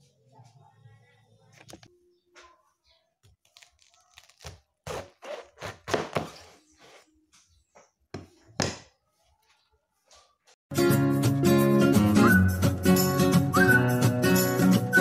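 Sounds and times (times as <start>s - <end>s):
knife crunching through cabbage: 3.4s - 6.5s.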